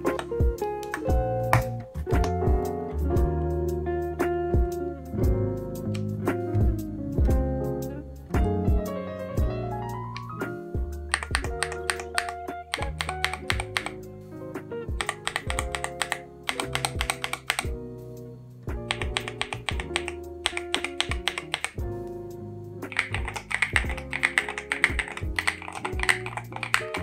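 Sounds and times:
background music sustained tones: 0.0 - 27.0
keyboard switches clicking: 11.1 - 14.0, 15.0 - 17.8, 18.9 - 21.8, 22.9 - 27.0
typing on keyboard: 11.1 - 14.0, 14.9 - 17.8, 18.9 - 21.8, 22.9 - 27.0.

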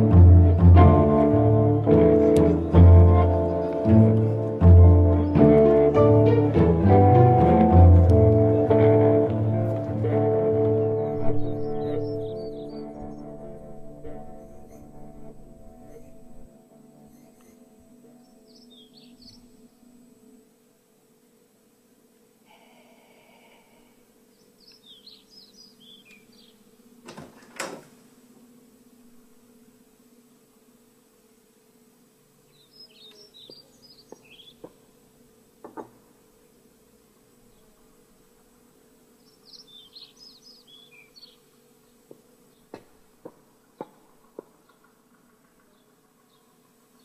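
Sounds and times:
faint steady hum: 0.0 - 47.0
small birds chirping: 10.5 - 20.2, 22.5 - 26.8, 32.4 - 34.9, 39.1 - 47.0
sharp door sounds: 27.1 - 27.9
small bird twittering: 32.6 - 34.7, 39.2 - 41.4.

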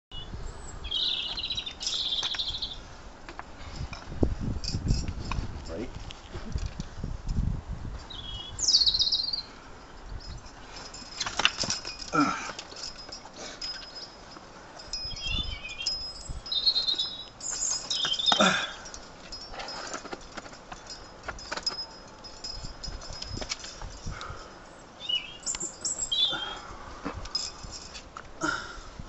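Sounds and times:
birds chirping: 0.1 - 3.0, 8.0 - 11.4, 12.1 - 20.2, 23.9 - 27.6
light metallic clinks: 3.7 - 5.9, 9.7 - 28.7.

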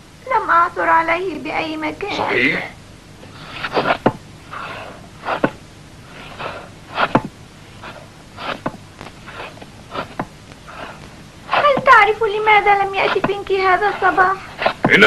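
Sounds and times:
knife whittling wood: 3.3 - 12.0, 12.8 - 15.0.

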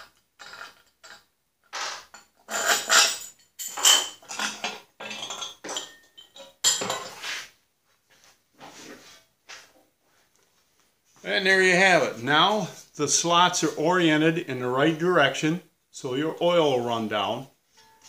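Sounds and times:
metal parts clinking: 1.8 - 7.2.

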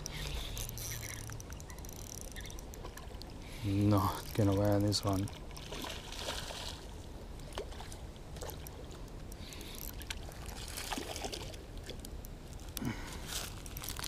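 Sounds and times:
fishing line clicks and rustles: 0.0 - 14.0
fish splashing in water: 5.3 - 12.0.

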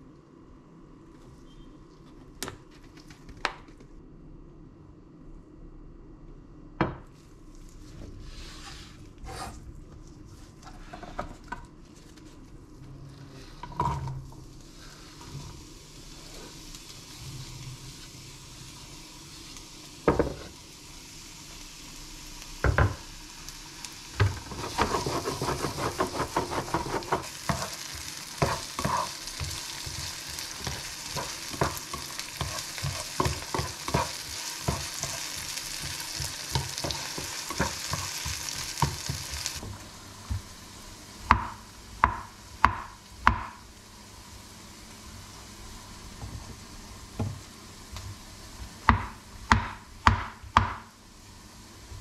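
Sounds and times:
spatula scraping a pan: 8.2 - 9.6, 24.5 - 39.6
vegetables sizzling in oil: 13.7 - 52.0
knife chopping on wooden board: 48.9 - 50.8
knocks on wooden cutting board: 48.9 - 50.8.

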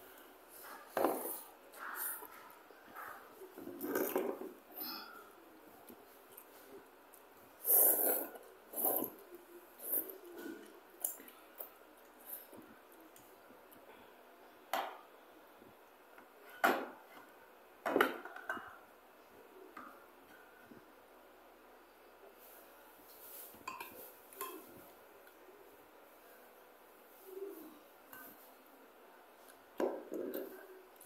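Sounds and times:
noisy eating sounds: 0.0 - 17.4.

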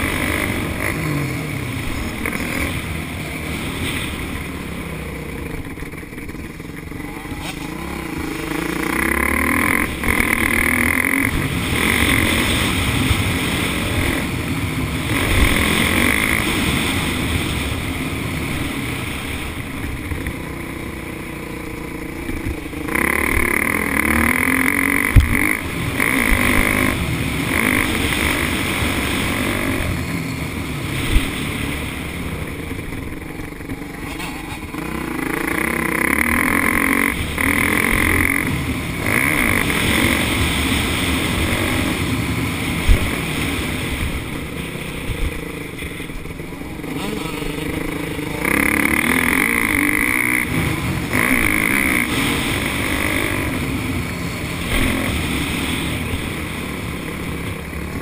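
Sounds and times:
motocross bike engine revving: 0.0 - 58.0
sharp thumps: 22.2 - 26.9.

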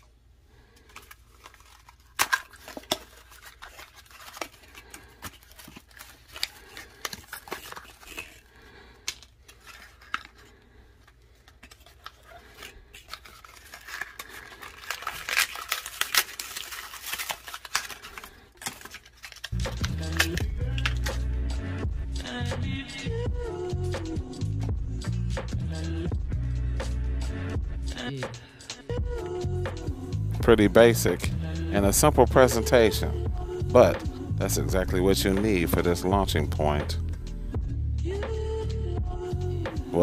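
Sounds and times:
packaging clicking and crackling: 0.7 - 21.2.

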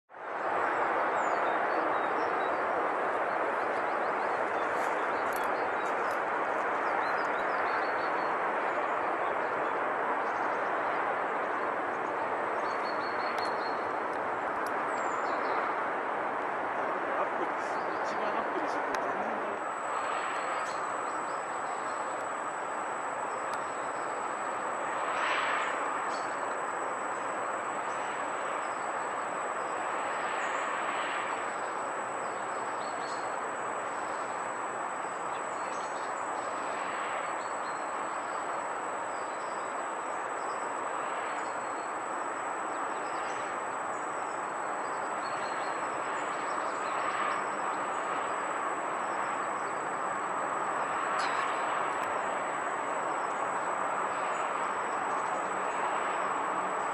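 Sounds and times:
distant road traffic hum: 0.1 - 56.9
faint bird chirps: 51.2 - 51.6.

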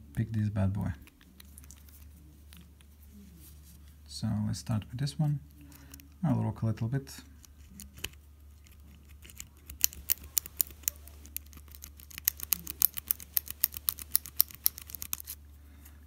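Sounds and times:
low steady hum: 0.0 - 16.0
lock pick clicking in padlock: 9.2 - 15.4.

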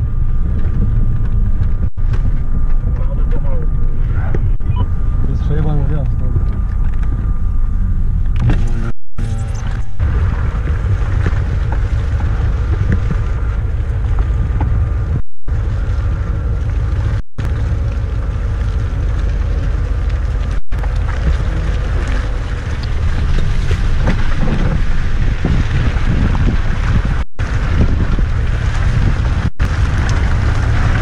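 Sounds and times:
off-road vehicle engine rumble: 0.0 - 31.0
wind buffeting microphone: 9.6 - 31.0.

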